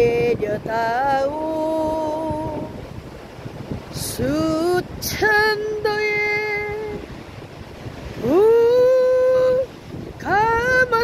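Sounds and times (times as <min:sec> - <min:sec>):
woman singing unaccompanied: 0:00.0 - 0:02.9, 0:04.0 - 0:07.2, 0:08.2 - 0:11.0
faint surf: 0:00.0 - 0:11.0.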